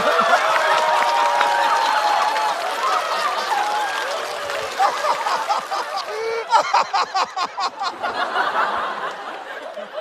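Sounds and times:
audience laughing: 4.5s - 10.0s.

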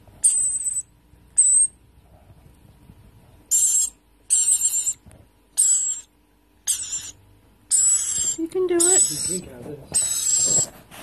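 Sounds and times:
lorikeet chick feeding calls: 0.2s - 1.8s, 3.5s - 10.7s.

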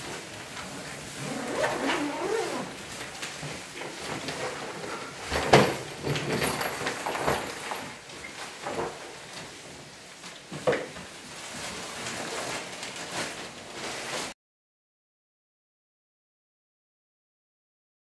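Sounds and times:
clothes rustling: 0.2s - 5.1s, 11.0s - 14.4s.

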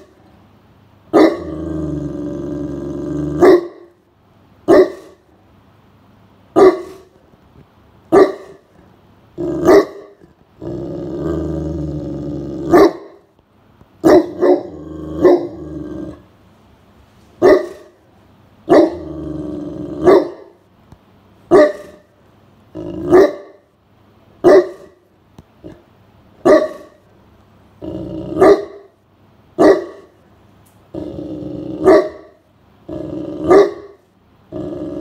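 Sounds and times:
dog barking deeply: 1.1s - 3.9s, 4.7s - 5.2s, 6.5s - 7.1s, 8.1s - 8.6s, 9.4s - 11.4s, 12.5s - 13.2s, 14.0s - 16.2s, 17.4s - 18.0s, 18.7s - 20.6s, 21.5s - 22.1s, 22.8s - 23.6s, 24.4s - 25.0s, 26.4s - 27.0s, 28.2s - 28.9s, 29.6s - 30.1s, 31.7s - 32.4s, 33.0s - 34.0s
dog growling: 1.2s - 3.6s, 9.4s - 12.9s, 14.2s - 16.3s, 18.7s - 20.4s, 22.7s - 23.3s, 27.8s - 28.7s, 30.9s - 32.2s, 32.8s - 33.8s, 34.5s - 35.0s.

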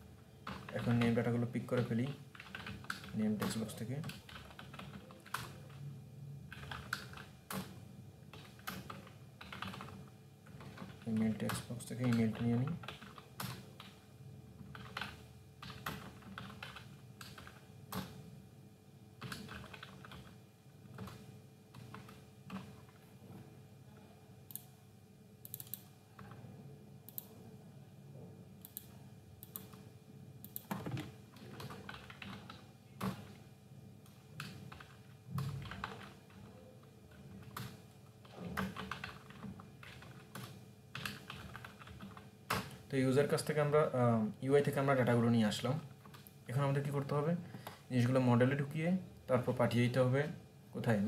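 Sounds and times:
faint steady hum: 0.0s - 51.0s
keyboard typing: 0.4s - 5.8s, 6.5s - 14.0s, 14.7s - 18.2s, 19.2s - 20.3s, 25.4s - 26.4s, 30.4s - 33.4s, 34.4s - 42.8s.

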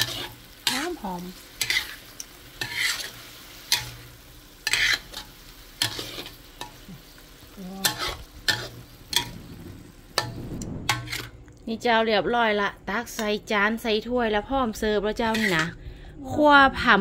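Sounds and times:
metal spatula scraping wok: 0.0s - 7.0s, 7.6s - 11.4s, 15.2s - 15.8s
food sizzling: 0.0s - 15.9s.

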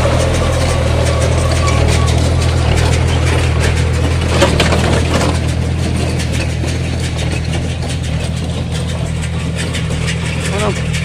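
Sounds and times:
baler machinery knocking and clicking: 0.0s - 11.0s
tractor engine running: 0.0s - 11.0s.

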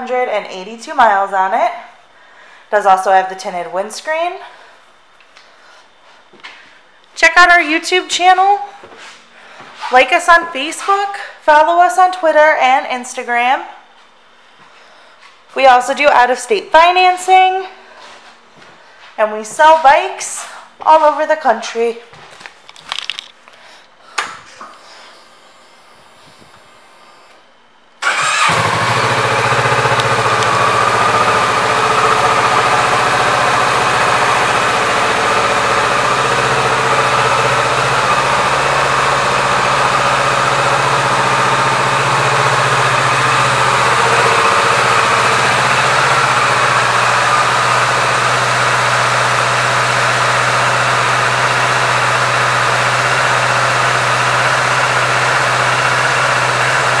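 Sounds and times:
motorcycle engine starting and idling: 28.0s - 57.0s.

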